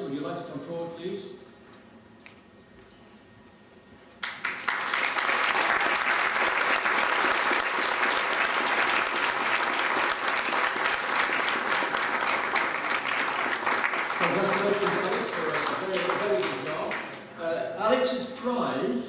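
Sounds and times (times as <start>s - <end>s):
audience applauding: 4.2s - 17.3s.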